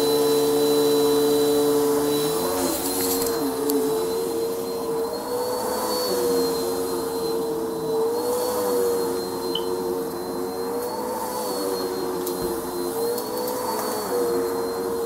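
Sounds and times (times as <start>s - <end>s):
vacuum cleaner on carpet: 0.0s - 15.0s.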